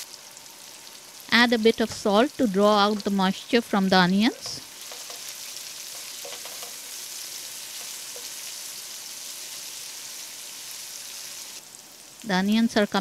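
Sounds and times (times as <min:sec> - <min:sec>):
onions sizzling in hot oil: 0:00.0 - 0:13.0
wooden spatula scraping pot: 0:05.9 - 0:07.0.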